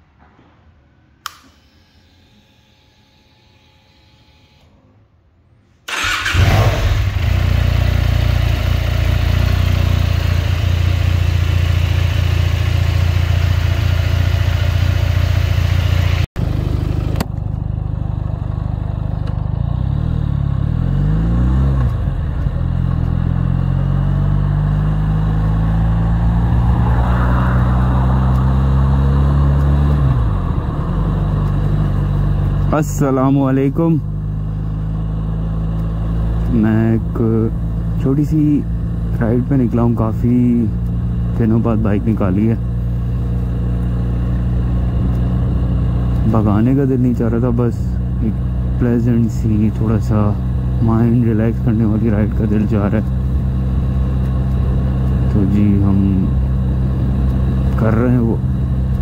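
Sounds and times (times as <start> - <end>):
motorcycle engine idling and revving: 5.9 - 59.0.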